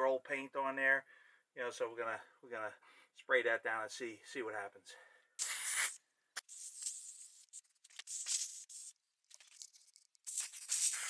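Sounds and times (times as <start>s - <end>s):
spray hissing: 5.4s - 7.4s, 10.2s - 11.0s.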